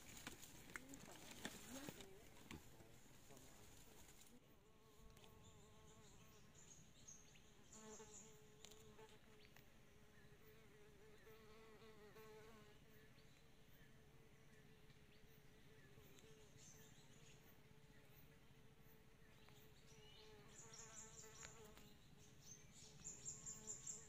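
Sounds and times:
faint insect wings buzzing: 7.6 - 13.1, 19.4 - 22.0, 22.8 - 24.0.

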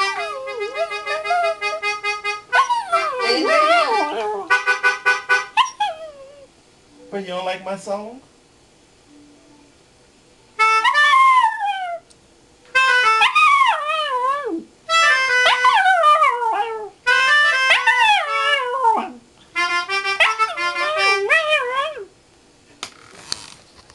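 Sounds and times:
dog howling: 0.0 - 1.8, 2.5 - 4.5, 10.8 - 12.0, 13.1 - 14.7, 15.4 - 19.2, 20.2 - 22.1.

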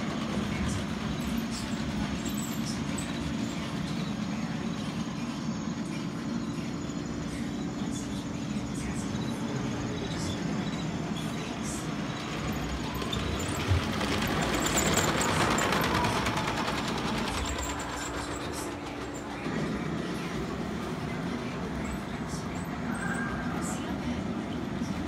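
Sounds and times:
steady hum: 0.0 - 25.0
model train wheels rattling: 11.8 - 23.3.

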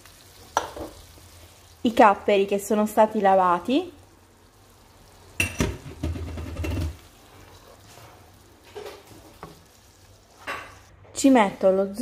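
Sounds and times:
wooden spoon stirring in pan: 5.7 - 11.8.

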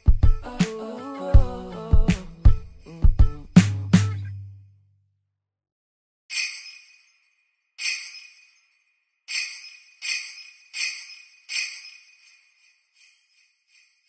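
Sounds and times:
sleigh bells jingling: 0.0 - 4.2, 6.3 - 14.0.

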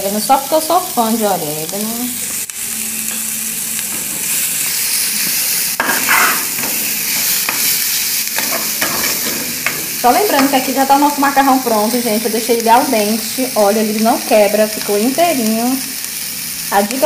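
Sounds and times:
food sizzling in a metal pan: 0.0 - 17.0
metal spoon scraping a pan: 3.1 - 11.4.

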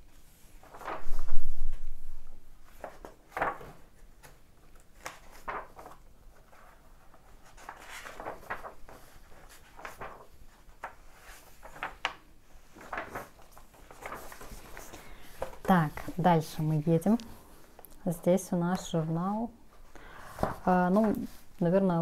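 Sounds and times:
paper pages rustling: 0.2 - 18.0, 18.8 - 21.7.

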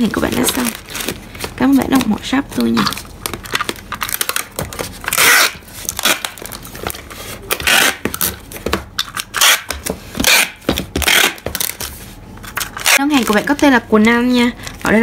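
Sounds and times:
packing tape ripping: 2.8 - 8.4, 9.0 - 11.9, 12.6 - 13.6
tape dispenser clicks and knocks: 2.8 - 11.8.

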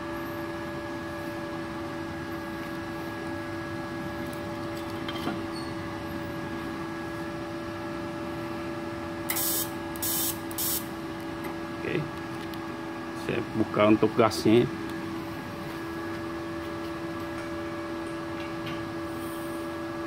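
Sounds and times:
welder humming: 9.3 - 10.9.

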